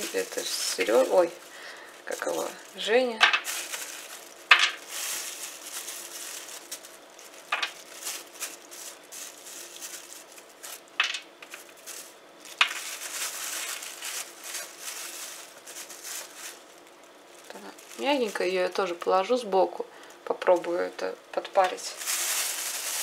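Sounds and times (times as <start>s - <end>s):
plastic bag crinkling: 0.0s - 23.0s
nuts dropping onto metal tray: 3.2s - 3.5s, 4.5s - 4.8s, 7.5s - 7.8s, 11.0s - 11.6s.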